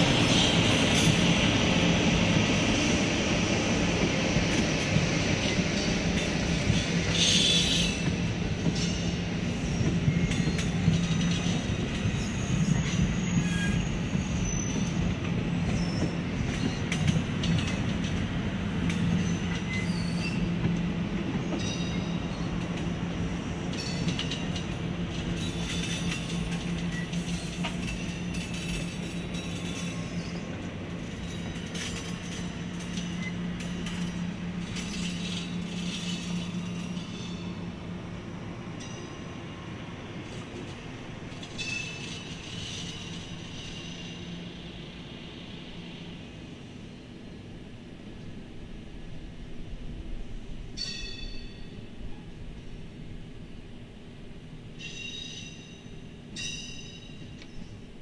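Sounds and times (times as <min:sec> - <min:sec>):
train rumbling past: 0:00.0 - 0:58.0
high-pitched wheel squeals: 0:12.2 - 0:14.9.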